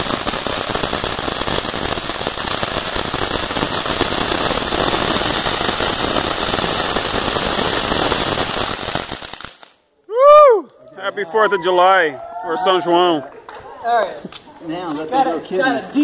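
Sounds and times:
firework fountain hissing crackle: 0.0s - 10.6s.

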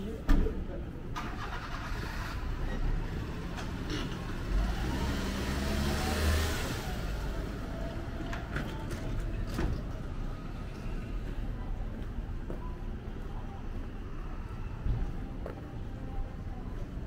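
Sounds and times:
vehicle passing by: 3.2s - 8.1s.

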